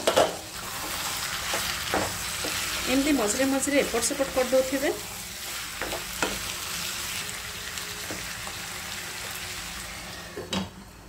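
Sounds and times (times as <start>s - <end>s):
chicken sizzling in pan: 0.0s - 10.3s
wooden spatula knocking on pan: 5.8s - 6.4s.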